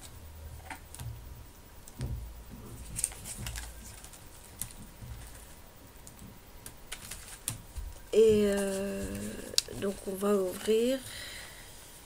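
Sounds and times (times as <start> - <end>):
scrapbook album being handled: 8.3 - 10.8.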